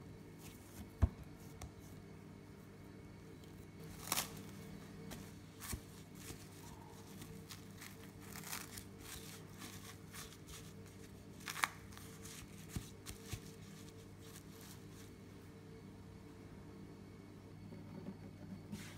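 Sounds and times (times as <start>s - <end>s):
faint steady hum: 0.0s - 18.9s
cling film crinkling: 5.6s - 15.0s.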